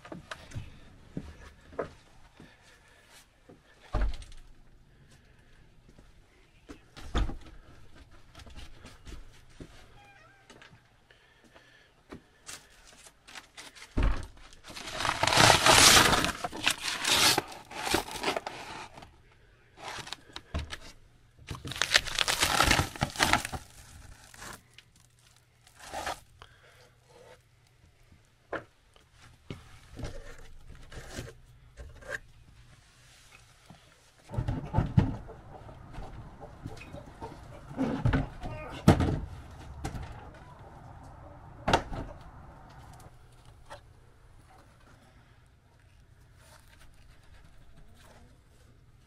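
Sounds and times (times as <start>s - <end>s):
brittle wood crackling and tearing: 14.5s - 18.8s, 21.5s - 26.3s.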